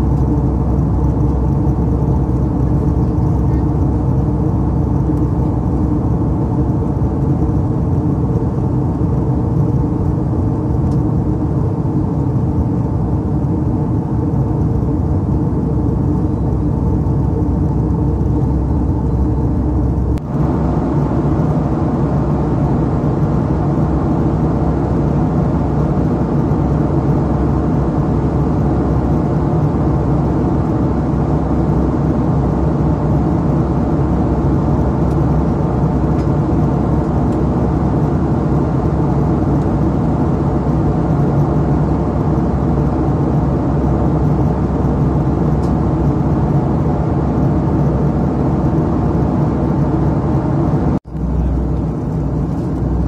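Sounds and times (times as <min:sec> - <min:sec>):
airliner cabin roar: 0:00.0 - 0:53.0.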